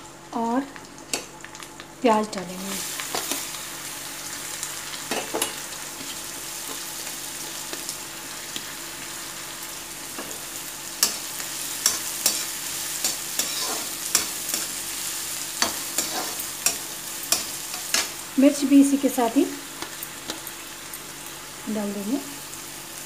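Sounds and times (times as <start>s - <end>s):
onion sizzling in oil: 0.1s - 23.0s
metal spatula scraping pan: 11.8s - 14.7s, 15.6s - 18.1s.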